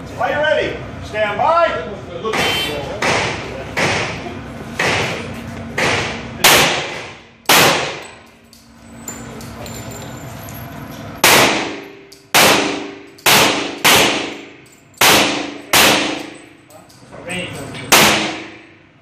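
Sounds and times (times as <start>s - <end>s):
sharp knock: 2.3s - 4.2s, 5.8s - 8.0s
handgun shots echoing: 5.8s - 8.1s, 11.2s - 16.5s, 17.9s - 18.6s.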